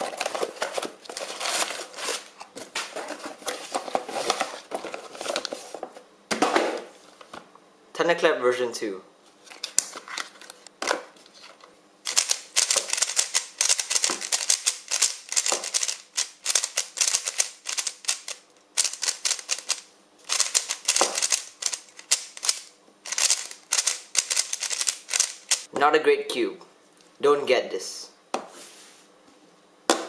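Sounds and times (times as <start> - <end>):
plastic puzzle cube clicking: 12.1 - 25.7.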